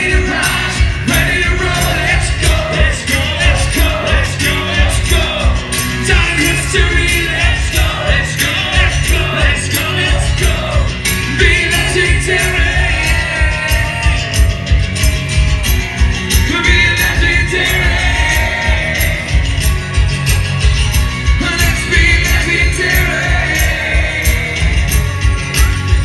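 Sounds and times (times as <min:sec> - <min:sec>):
man singing lead vocal: 0:00.0 - 0:14.8, 0:16.3 - 0:19.8, 0:21.2 - 0:25.7
live acoustic rock band: 0:00.0 - 0:26.0.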